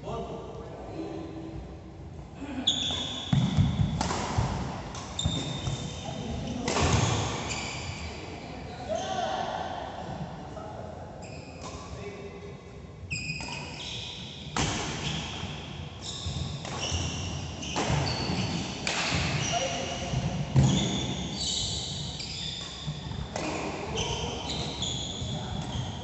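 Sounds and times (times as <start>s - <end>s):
racket hitting shuttlecock: 3.3s - 5.8s, 6.6s - 7.4s, 14.5s - 15.6s, 16.4s - 19.5s
shoes squeaking on court: 4.9s - 8.1s, 13.1s - 14.2s, 16.0s - 26.0s.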